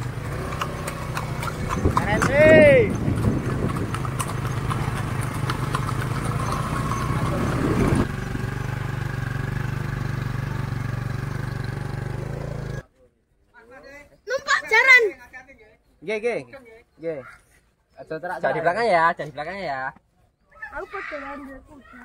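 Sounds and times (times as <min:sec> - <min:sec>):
motorcycle engine running: 0:00.0 - 0:12.9.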